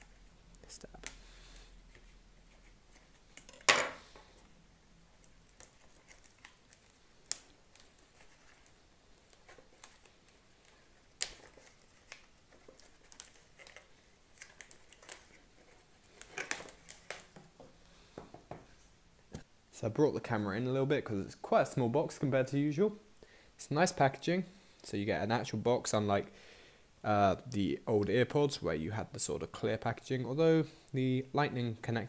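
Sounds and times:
plastic wrap crinkling: 5.2s - 17.6s.

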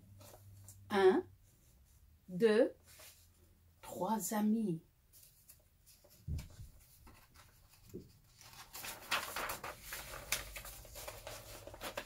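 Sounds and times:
paper pages rustling: 5.1s - 12.0s.

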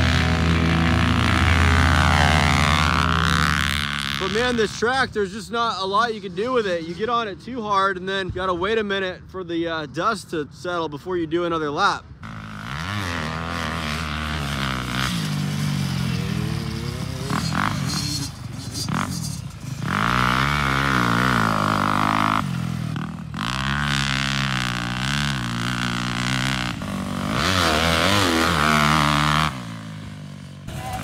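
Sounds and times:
motocross bike engine revving: 0.0s - 5.0s, 12.2s - 31.0s.

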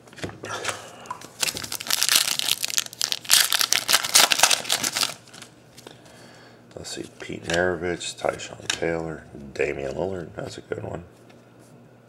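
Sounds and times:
card pack wrapper tearing: 1.3s - 5.5s.

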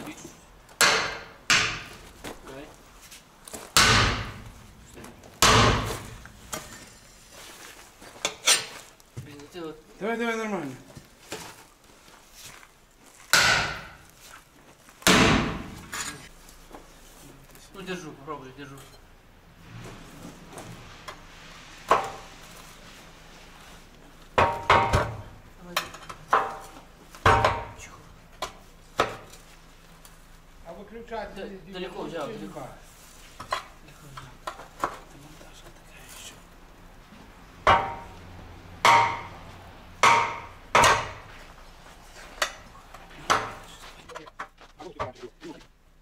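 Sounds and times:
steel tools clanging on wheel rim: 8.2s - 8.9s.

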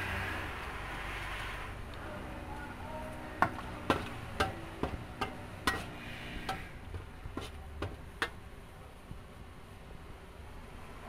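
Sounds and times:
metal spatula scraping wok: 3.4s - 8.4s.

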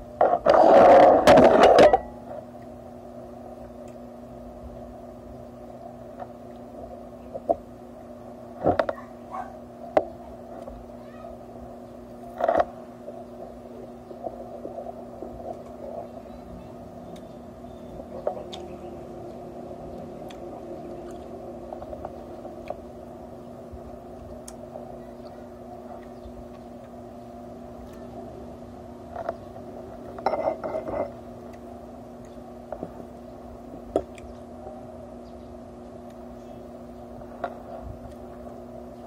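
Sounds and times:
steady low hum: 0.0s - 39.0s
quiet chewing: 12.1s - 23.0s, 23.7s - 27.1s, 27.7s - 28.2s.

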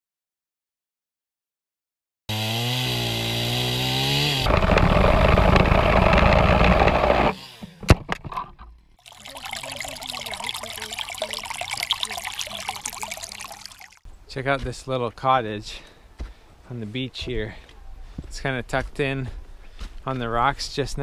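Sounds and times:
chainsaw cutting branch: 2.3s - 7.6s
chainsaw running: 2.3s - 7.6s
creek trickling over stones: 9.0s - 14.1s.

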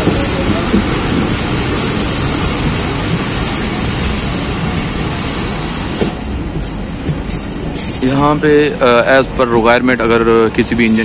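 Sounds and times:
rushing air: 0.0s - 9.1s
train wheels on rails: 0.0s - 11.0s.

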